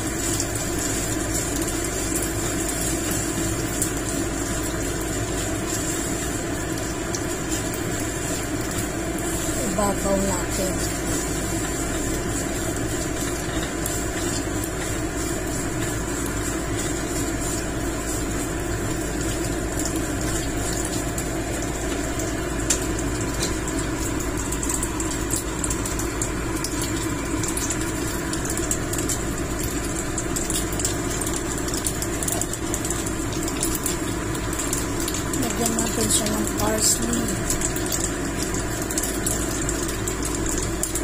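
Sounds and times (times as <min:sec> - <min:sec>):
steady hum: 0:00.0 - 0:28.8
food crackling in a pan: 0:00.0 - 0:41.0.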